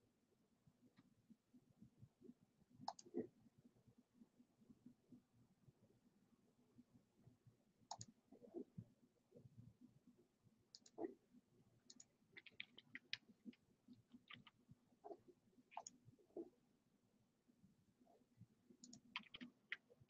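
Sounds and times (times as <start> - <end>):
mouse and keyboard clicks: 2.8 - 3.2, 7.9 - 8.1, 10.7 - 11.1, 11.9 - 16.0, 18.8 - 20.0.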